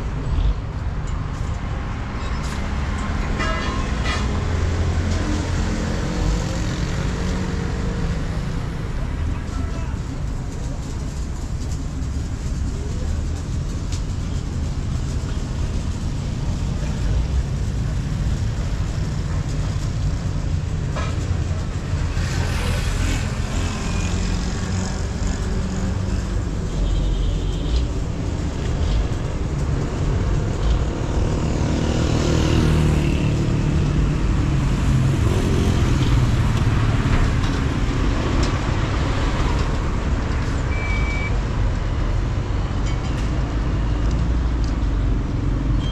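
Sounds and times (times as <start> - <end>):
low rumble of motor vehicles: 0.0 - 45.9
vehicles passing: 0.0 - 45.9
short high beep: 40.7 - 41.4.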